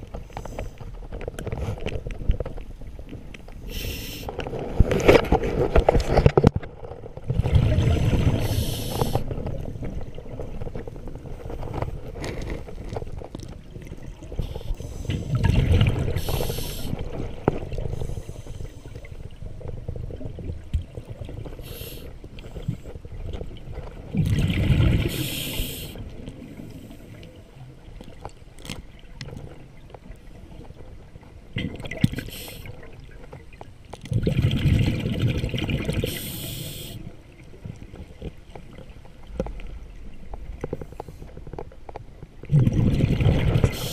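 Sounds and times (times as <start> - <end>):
diver breathing underwater: 8.4 - 9.3, 14.4 - 17.1, 21.6 - 22.9, 24.6 - 27.2, 36.0 - 37.1
air bubbling from regulator: 14.0 - 19.1, 23.9 - 27.2, 34.0 - 37.1, 42.5 - 43.9.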